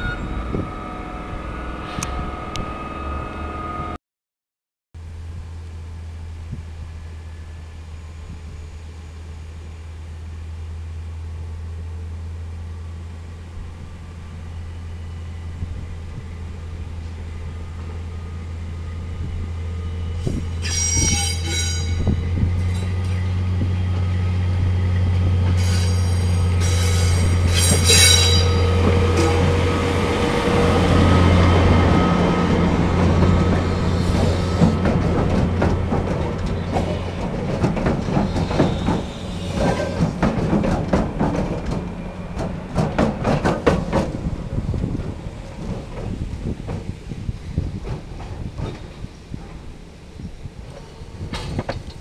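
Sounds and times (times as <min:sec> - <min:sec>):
diesel locomotive running: 0:05.0 - 0:52.0
train wheels squealing: 0:19.8 - 0:23.4, 0:25.6 - 0:30.0, 0:30.6 - 0:34.9, 0:38.1 - 0:40.2.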